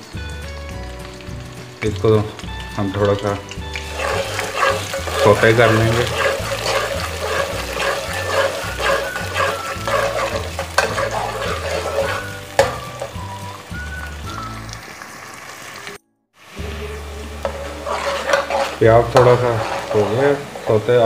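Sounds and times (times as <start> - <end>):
soft background music: 0.0 - 14.9, 16.0 - 21.0
onions sizzling in oil: 0.0 - 21.0
metal spoon scraping a pot: 3.8 - 13.2, 17.4 - 21.0.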